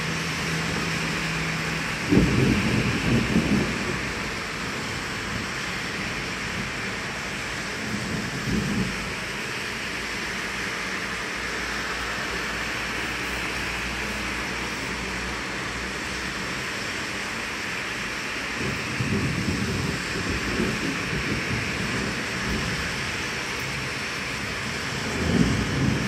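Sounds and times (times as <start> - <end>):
thunder rumbling: 0.0 - 9.6, 18.5 - 26.0
heavy rain hissing: 0.0 - 26.0.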